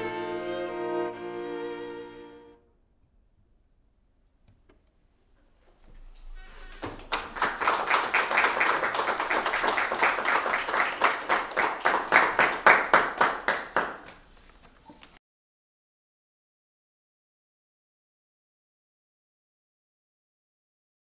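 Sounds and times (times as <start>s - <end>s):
hands clapping: 6.8s - 15.2s.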